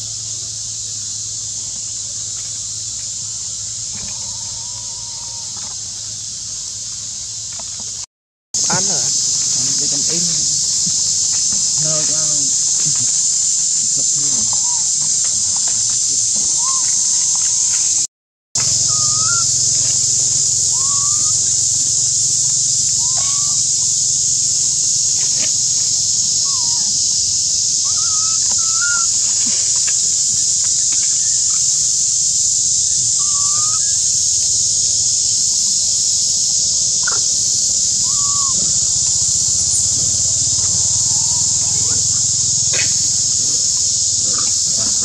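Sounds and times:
high-pitched insect chorus: 0:00.0 - 0:45.0
short rising chirping calls: 0:08.6 - 0:23.9, 0:27.8 - 0:31.8, 0:37.0 - 0:45.0.

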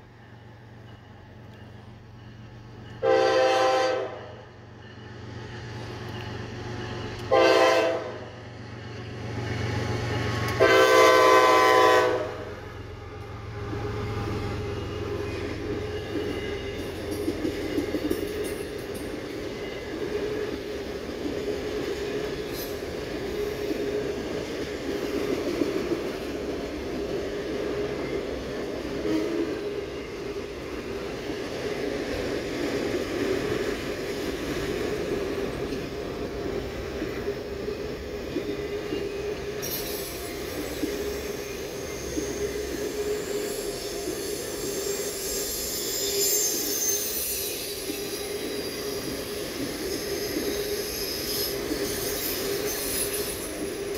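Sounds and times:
train wheels rumbling on rail: 0:00.0 - 0:53.9
high-pitched wheel squeal: 0:39.6 - 0:53.8.

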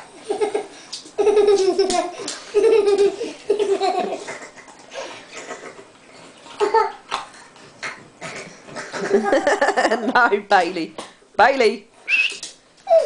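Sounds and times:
young child laughing: 0:00.2 - 0:04.7.

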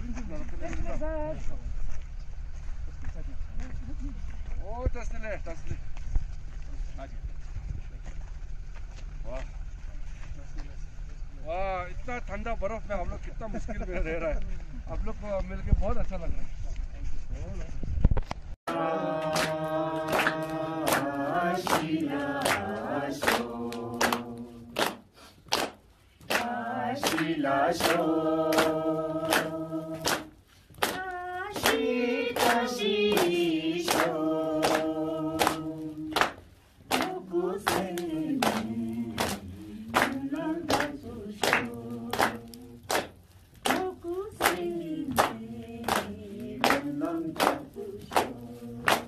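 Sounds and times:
group singing: 0:18.7 - 0:25.1, 0:26.2 - 0:49.0
hands clapping a beat: 0:18.7 - 0:49.0.

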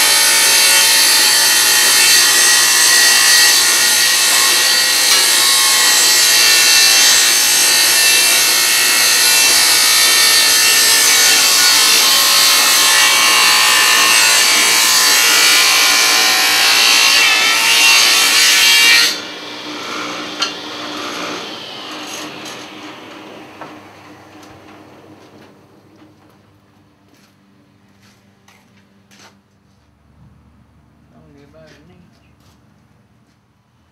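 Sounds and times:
table saw ripping a board: 0:00.0 - 0:24.4.

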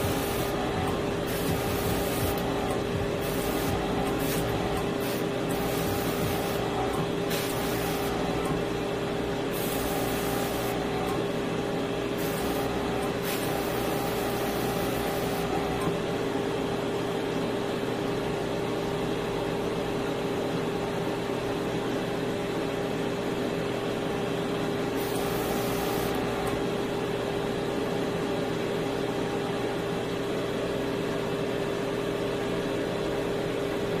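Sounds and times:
small electric motor humming: 0:00.0 - 0:08.6.

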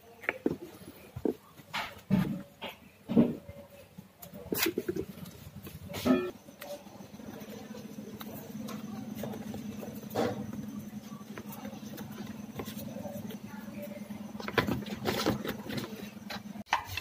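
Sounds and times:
steady low hum: 0:00.6 - 0:17.0.

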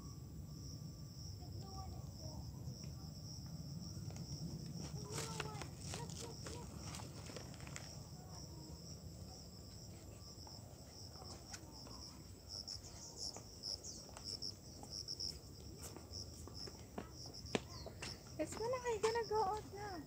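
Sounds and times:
insects trilling: 0:00.0 - 0:20.0.

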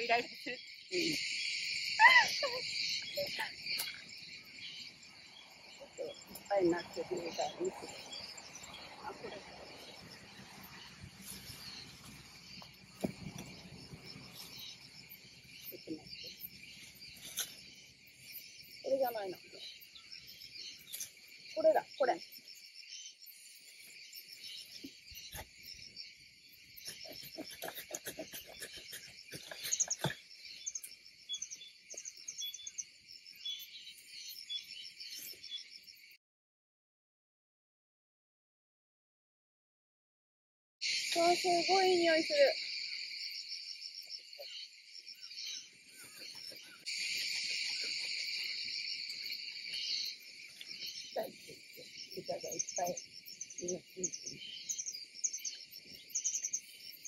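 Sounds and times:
insects chirring: 0:00.0 - 0:36.2, 0:40.8 - 0:57.0
rustle of branches and leaves: 0:02.0 - 0:19.6, 0:20.2 - 0:22.4
branches snipping and snapping: 0:17.2 - 0:17.6.

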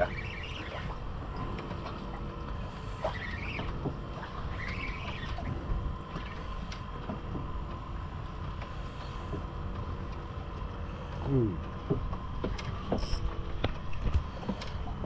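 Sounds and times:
faint steady hum: 0:00.0 - 0:15.0
wind and water noise: 0:00.0 - 0:15.0.

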